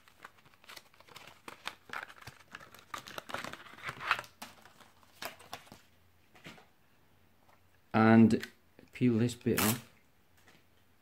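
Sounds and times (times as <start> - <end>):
plastic crinkling and rustling: 0.0 - 5.9.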